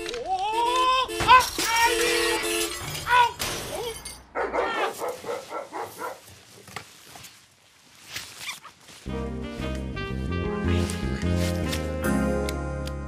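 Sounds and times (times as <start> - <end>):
music: 9.1 - 13.0.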